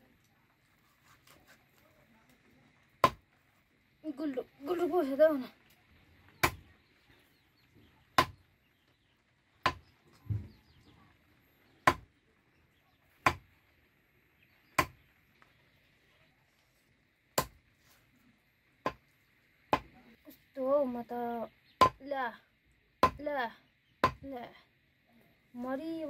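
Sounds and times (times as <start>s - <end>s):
knife chopping on wooden block: 9.6s - 9.8s, 11.9s - 12.1s, 13.2s - 13.4s, 14.8s - 15.0s.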